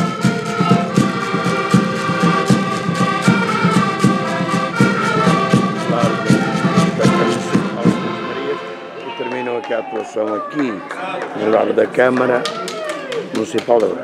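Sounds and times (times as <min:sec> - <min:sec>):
accordions playing lively tune: 0:00.0 - 0:12.4.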